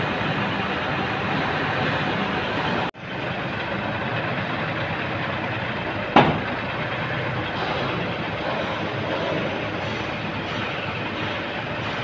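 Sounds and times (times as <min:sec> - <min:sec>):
truck engine running: 0:00.0 - 0:12.0
loud knock: 0:06.2 - 0:06.5.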